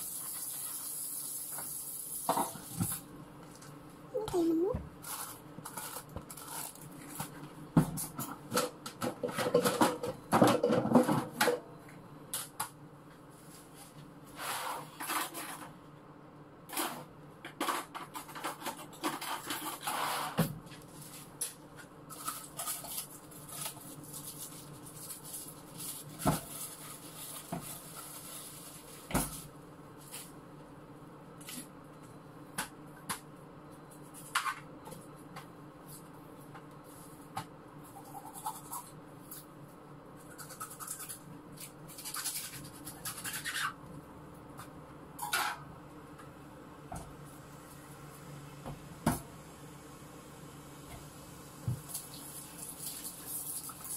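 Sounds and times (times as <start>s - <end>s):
faint steady hum: 0.0s - 53.9s
dishes and pans clinking: 9.1s - 11.6s.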